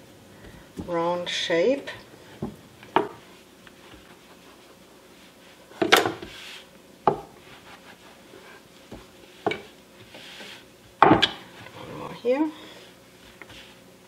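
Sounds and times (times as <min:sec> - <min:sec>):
rolling pin rubbing on dough: 0:03.2 - 0:05.6, 0:06.2 - 0:10.7
rolling pin knocking on board: 0:07.1 - 0:07.3.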